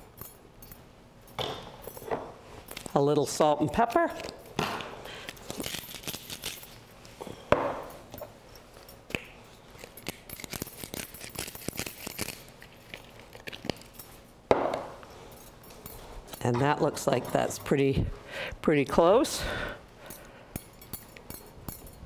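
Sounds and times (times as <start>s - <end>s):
small clinks: 0.0s - 3.0s, 5.2s - 17.7s, 19.9s - 22.0s
hand grinder crackling clicks: 9.8s - 13.8s.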